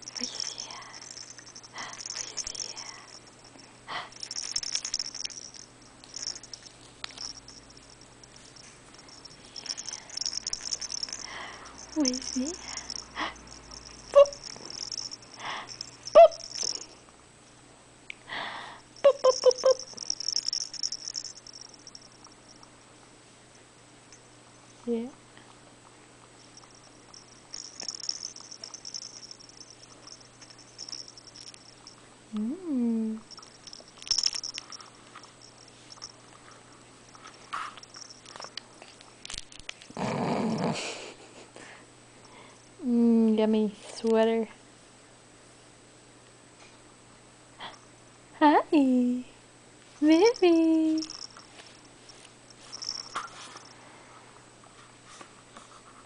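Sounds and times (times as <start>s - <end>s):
plush toy rattle shaking: 0.0s - 16.9s, 19.0s - 22.5s, 26.5s - 32.0s, 33.3s - 36.2s, 37.1s - 38.6s, 50.0s - 53.8s.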